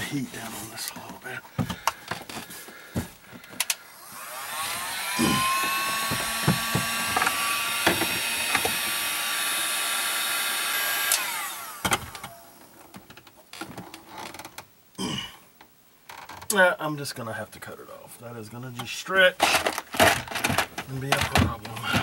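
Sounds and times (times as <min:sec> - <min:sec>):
fan motor whining: 0:03.4 - 0:12.7
heat gun blowing: 0:03.6 - 0:12.5
handling clicks and knocks: 0:19.4 - 0:22.0.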